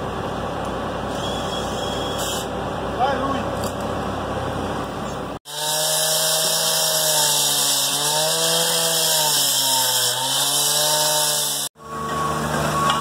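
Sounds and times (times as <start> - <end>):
blade grinding through concrete: 5.5 - 11.7
cut-off saw engine: 5.5 - 13.0.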